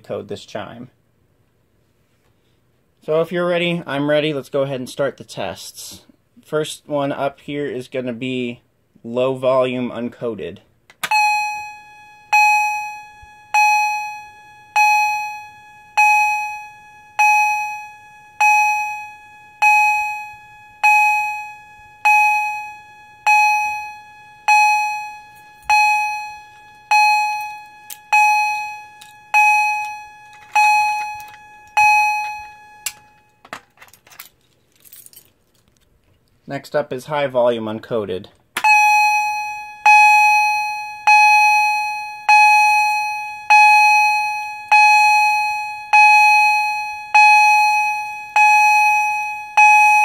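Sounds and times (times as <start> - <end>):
fire alarm chime: 11.0 - 33.5, 38.6 - 50.0.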